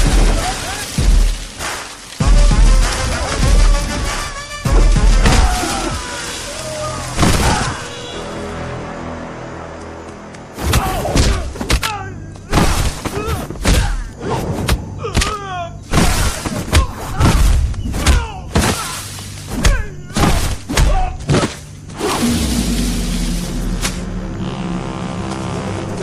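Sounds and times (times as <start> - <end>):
background music: 0.0 - 15.4, 18.0 - 26.0
punch and kick thuds: 19.5 - 21.6.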